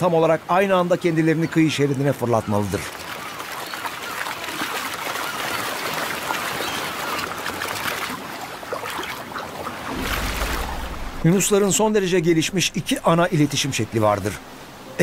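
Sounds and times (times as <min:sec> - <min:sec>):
shallow water splashing: 0:02.2 - 0:14.9
low rumble: 0:09.9 - 0:13.6.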